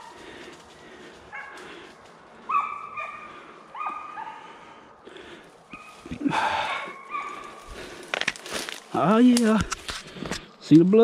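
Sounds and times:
hounds baying: 0:00.0 - 0:08.0.

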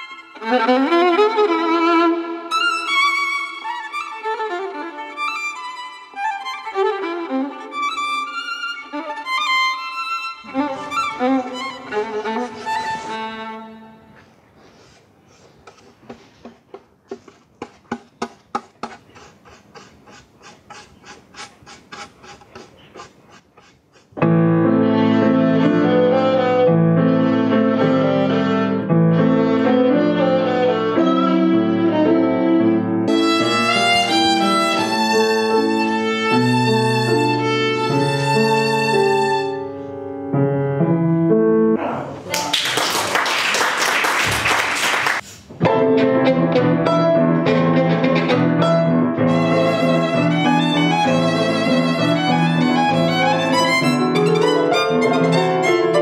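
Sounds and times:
violin playing slow melody: 0:00.0 - 0:14.3, 0:24.2 - 0:40.2, 0:46.0 - 0:56.0
piano accompaniment: 0:00.0 - 0:14.4, 0:24.2 - 0:42.1, 0:45.5 - 0:56.0.

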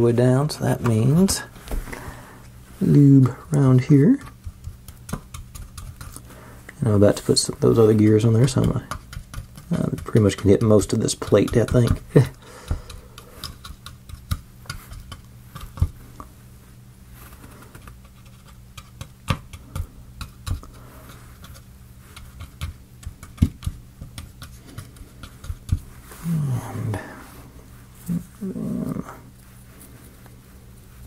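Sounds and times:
faint low hum: 0:00.0 - 0:31.0
wooden stick tapping plywood: 0:07.9 - 0:16.0, 0:18.8 - 0:20.8, 0:21.4 - 0:25.9.

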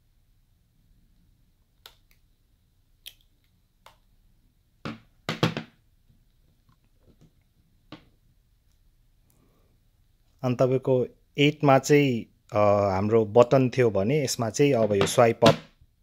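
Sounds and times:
phones knocking on marble tabletop: 0:04.9 - 0:05.7.

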